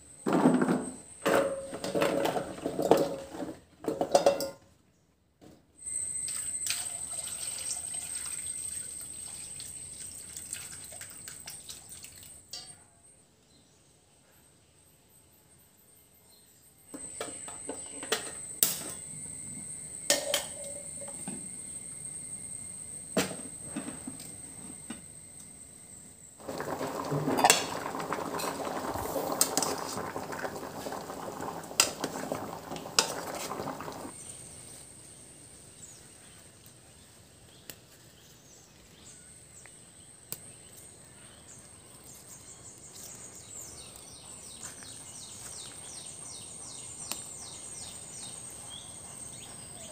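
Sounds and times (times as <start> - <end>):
water boiling in pot: 0.1 - 4.6, 5.8 - 12.7, 16.9 - 35.1, 45.2 - 49.9.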